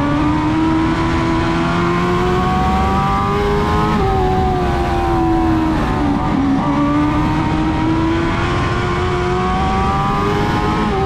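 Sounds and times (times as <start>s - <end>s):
race car engine at high revs: 0.0s - 11.0s.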